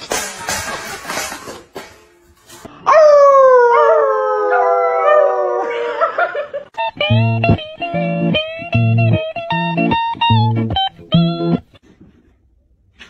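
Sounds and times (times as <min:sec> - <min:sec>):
dog howling: 0:02.9 - 0:06.1
guitar music with bass line: 0:06.8 - 0:11.8.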